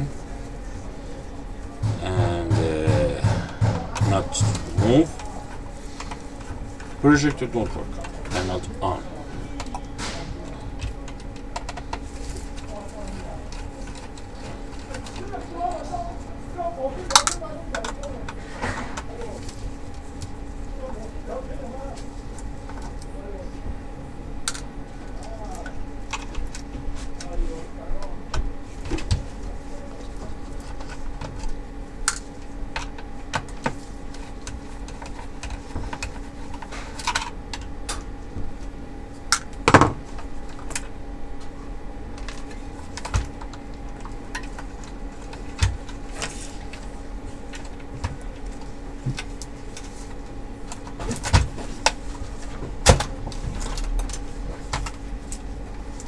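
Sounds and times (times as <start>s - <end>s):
steady hum: 0.0s - 56.0s
loud knock: 1.8s - 5.0s.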